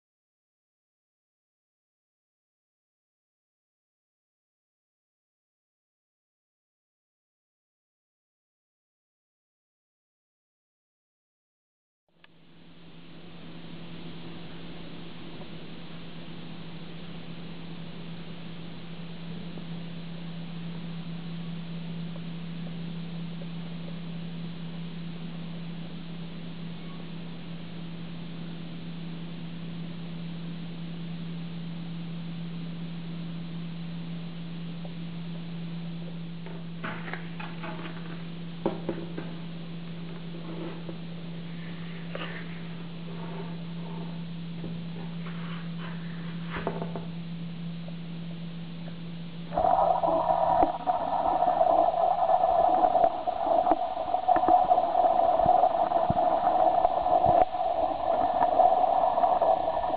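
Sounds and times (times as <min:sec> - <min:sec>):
low hum: 0:12.2 - 0:59.9
background hiss: 0:49.2 - 0:59.9.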